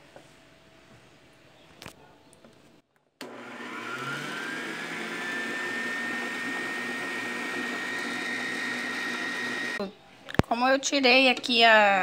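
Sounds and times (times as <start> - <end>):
stand mixer whisking: 3.2 - 9.8.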